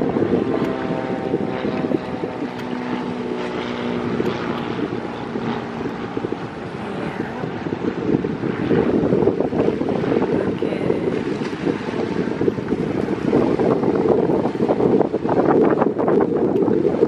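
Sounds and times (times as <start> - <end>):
engine drone: 0.0 - 17.0
wind buffeting microphone: 0.0 - 17.0.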